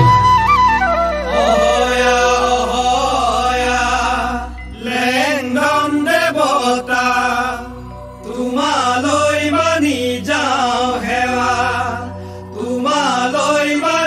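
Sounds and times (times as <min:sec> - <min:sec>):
bamboo flute melody: 0:00.0 - 0:03.5
men singing in chorus: 0:01.3 - 0:14.0.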